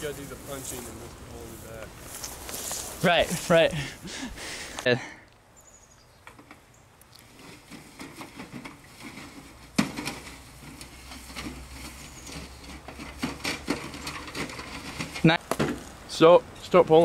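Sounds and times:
footsteps on dry grass: 0.0s - 4.8s
rustles and light knocks: 6.2s - 16.0s.

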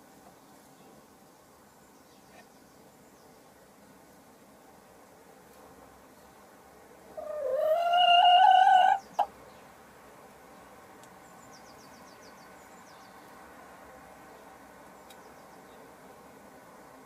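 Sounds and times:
hen calling: 7.2s - 9.3s.

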